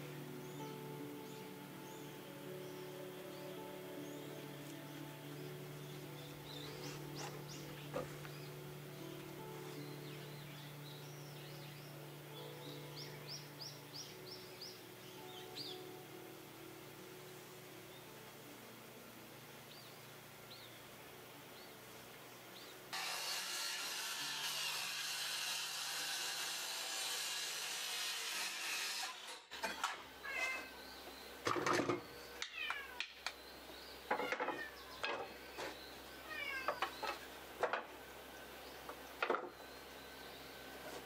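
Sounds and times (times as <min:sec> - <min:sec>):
wooden boards knocking on workbench: 0:31.4 - 0:32.0, 0:34.1 - 0:35.8, 0:36.7 - 0:37.9, 0:38.9 - 0:39.6.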